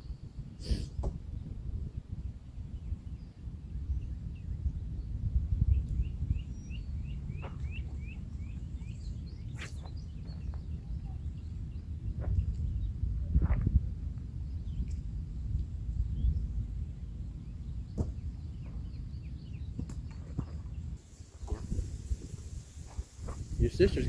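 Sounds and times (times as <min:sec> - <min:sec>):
wind rumbling on microphone: 0:00.0 - 0:24.0
bird chirping: 0:02.7 - 0:13.0, 0:14.4 - 0:24.0
short sharp noises: 0:09.5 - 0:10.0.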